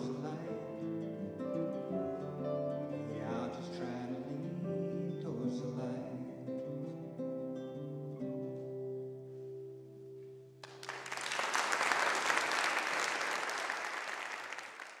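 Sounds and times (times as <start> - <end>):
acoustic guitar chord ringing: 0.0 - 10.6
audience applause: 10.6 - 15.0.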